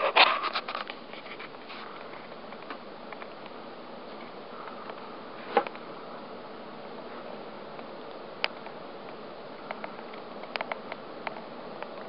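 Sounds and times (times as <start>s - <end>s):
clicks and scrapes: 0.0s - 2.8s
ceiling fan running: 0.0s - 12.0s.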